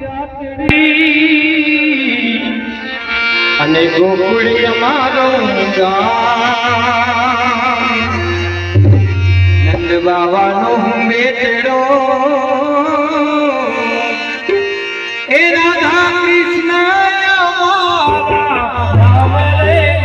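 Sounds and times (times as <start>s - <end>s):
person singing ornamented melody: 0.2s - 8.7s, 9.6s - 20.0s
instrumental accompaniment: 0.6s - 20.0s
drums: 6.4s - 11.6s, 12.9s - 20.0s.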